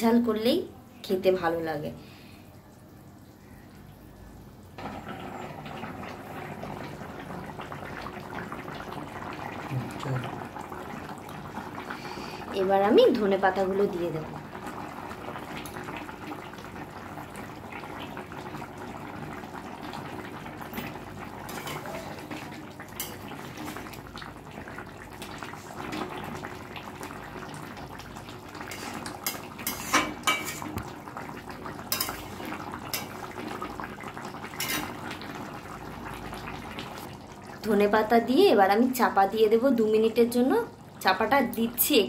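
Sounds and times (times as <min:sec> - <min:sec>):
curry simmering and bubbling: 0:02.0 - 0:42.0
metal spatula scraping pan: 0:28.7 - 0:30.8.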